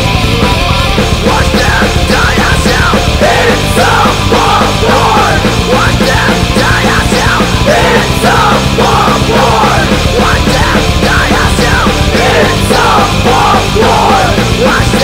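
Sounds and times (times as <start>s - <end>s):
rock band playing: 0.0s - 15.0s.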